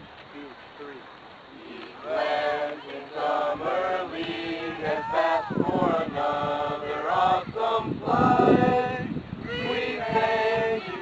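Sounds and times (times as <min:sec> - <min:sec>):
group singing in unison: 0:01.6 - 0:11.0.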